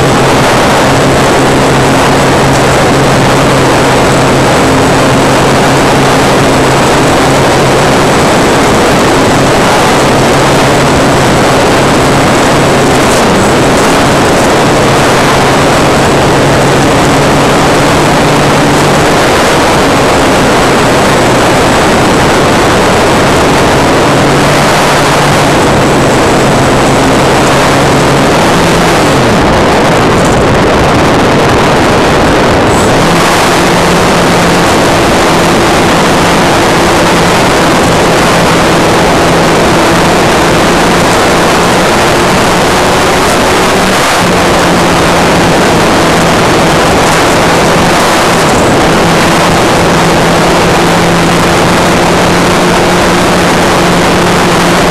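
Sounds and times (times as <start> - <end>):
model plane motor droning: 0.0 - 29.3
rushing wind noise: 0.0 - 54.9.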